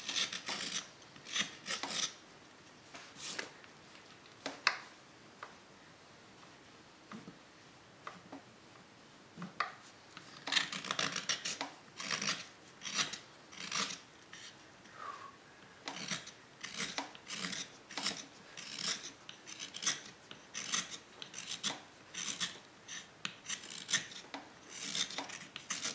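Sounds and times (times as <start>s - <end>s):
carving tool scraping wood: 0.0s - 2.2s, 9.8s - 14.6s, 15.8s - 25.9s.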